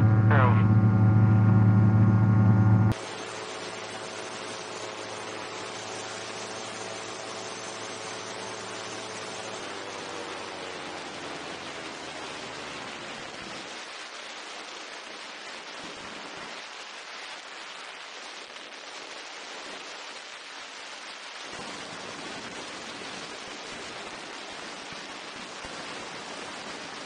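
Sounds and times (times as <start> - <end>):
low engine rumble: 0.0 - 6.2.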